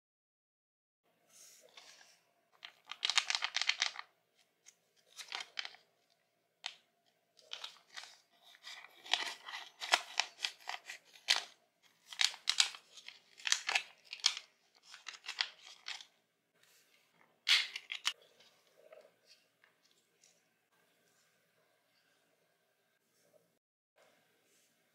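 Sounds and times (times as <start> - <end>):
plastic pouch crinkling: 2.6 - 5.8, 7.4 - 16.2, 17.5 - 18.2.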